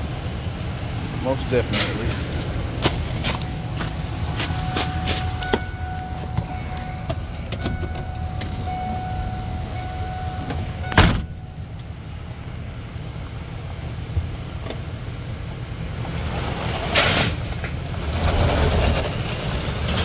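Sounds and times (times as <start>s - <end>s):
van engine idling: 0.0s - 16.1s
high warning tone: 3.3s - 11.8s
door slamming: 10.9s - 11.4s.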